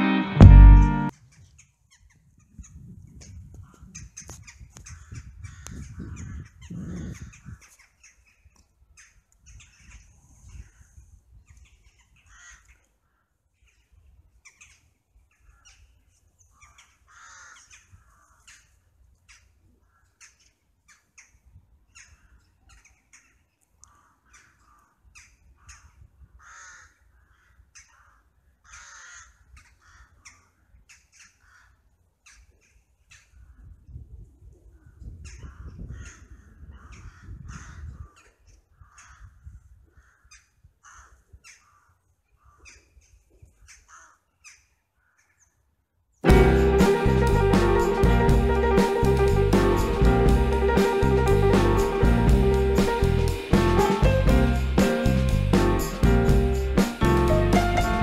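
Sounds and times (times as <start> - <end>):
crows cawing: 12.3 - 12.7, 17.1 - 18.5, 26.4 - 30.3, 40.0 - 41.9, 43.9 - 44.2.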